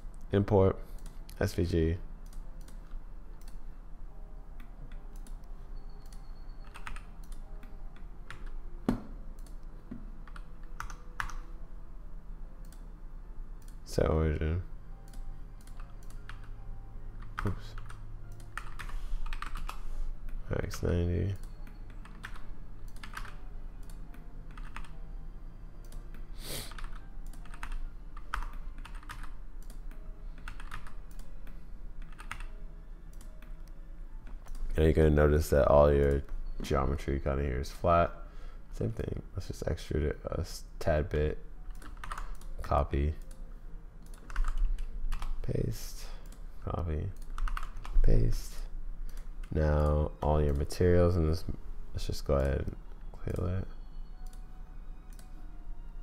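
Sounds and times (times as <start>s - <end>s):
faint low hum: 0.0s - 56.0s
keyboard keystrokes: 6.0s - 11.4s, 21.3s - 24.9s, 26.7s - 32.5s, 41.7s - 42.6s, 44.0s - 45.4s, 47.1s - 48.0s.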